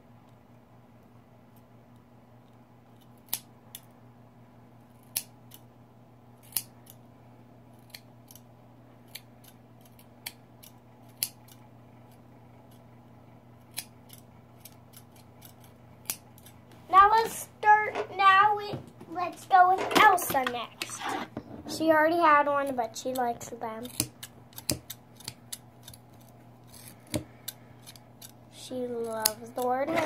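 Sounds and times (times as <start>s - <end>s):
scissors snipping hair: 2.9s - 3.9s, 4.9s - 5.7s, 6.4s - 7.0s, 7.8s - 11.6s, 13.6s - 16.6s, 22.6s - 28.4s, 29.0s - 29.8s.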